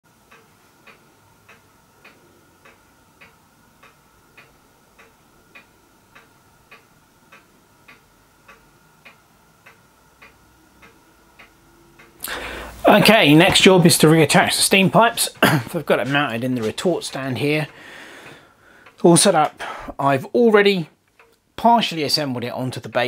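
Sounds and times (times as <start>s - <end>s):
faint even ticking: 0.1s - 23.0s
faint high hum: 0.2s - 22.9s.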